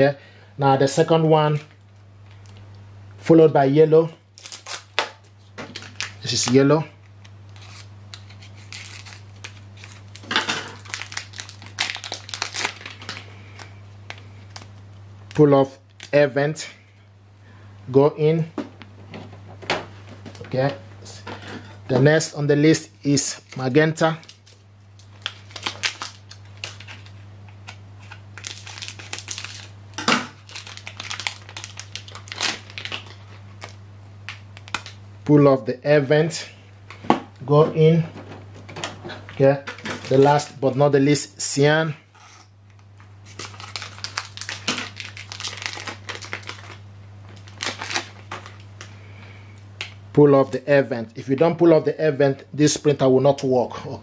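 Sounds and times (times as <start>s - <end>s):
plastic packaging crinkling: 4.3s - 16.2s, 23.2s - 35.0s, 39.7s - 40.5s, 42.1s - 49.1s.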